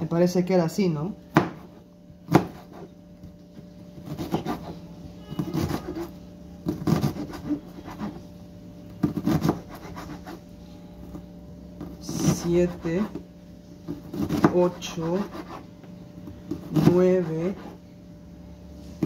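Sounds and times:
knife cutting onion: 1.3 - 2.9, 4.0 - 8.2, 9.0 - 10.4, 11.8 - 13.2, 13.9 - 15.6, 16.5 - 17.8
knife scraping cutting board: 4.0 - 4.8, 5.4 - 8.2, 9.0 - 10.4, 11.8 - 13.2, 13.9 - 15.7, 16.5 - 17.8.

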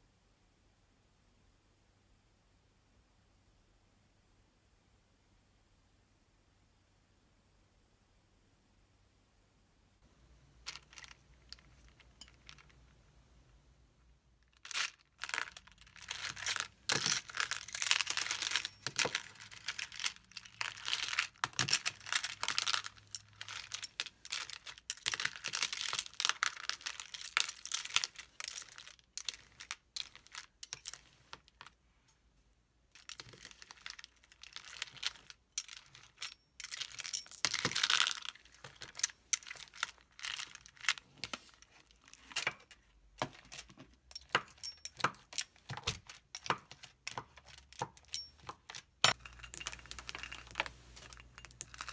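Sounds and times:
slime beads crackling and clicking: 14.6 - 31.3.

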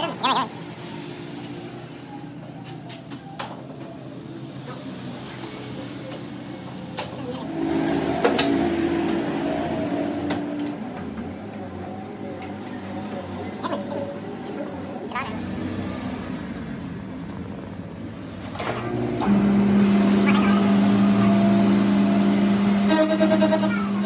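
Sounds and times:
loud steady hum: 7.0 - 16.6, 18.1 - 24.0
low machine hum: 18.4 - 24.0.

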